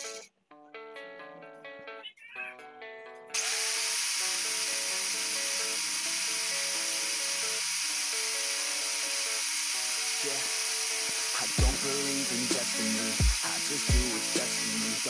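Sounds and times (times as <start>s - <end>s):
background music: 0.0s - 3.8s, 4.4s - 15.0s
angle grinder whining: 3.4s - 15.0s.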